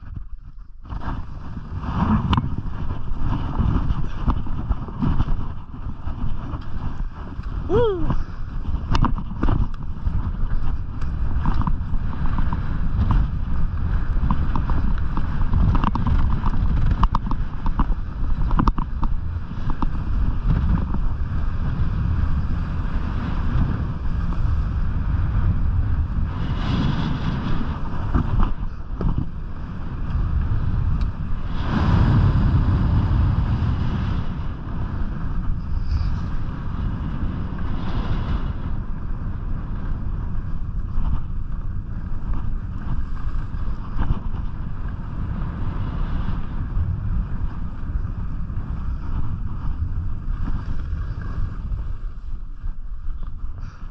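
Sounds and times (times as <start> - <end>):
skis scraping over snow: 0.0 - 53.9
wind buffeting microphone: 0.0 - 53.9.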